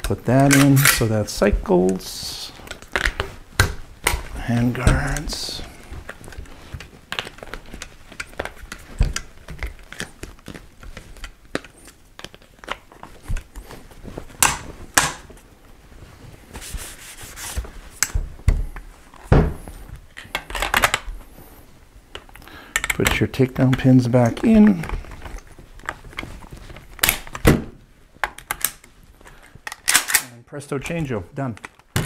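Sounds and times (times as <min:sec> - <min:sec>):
rifle handguards clicking and knocking: 0:00.4 - 0:02.0, 0:02.7 - 0:13.6, 0:14.4 - 0:15.4, 0:20.2 - 0:21.1, 0:22.1 - 0:27.4, 0:28.2 - 0:28.9, 0:29.6 - 0:31.0.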